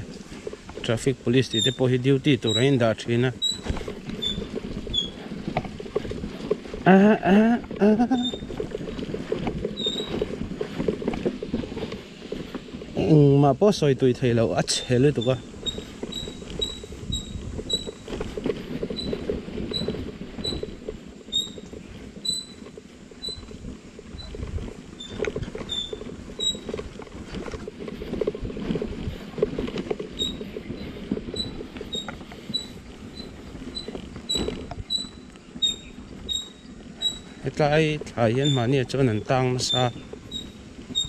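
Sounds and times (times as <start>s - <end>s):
motorcycle engine and road rumble: 0.0s - 41.0s.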